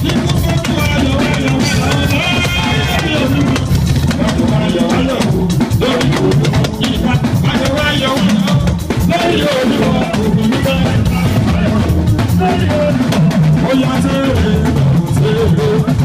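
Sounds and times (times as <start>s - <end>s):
band music over pa system: 0.0s - 16.0s.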